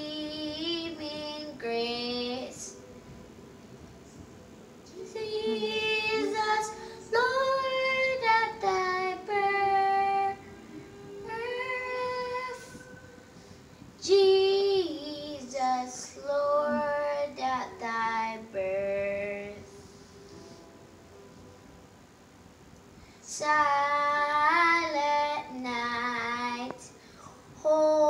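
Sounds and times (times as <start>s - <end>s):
girl singing unaccompanied: 0.0s - 3.1s, 4.8s - 19.8s, 23.2s - 28.0s.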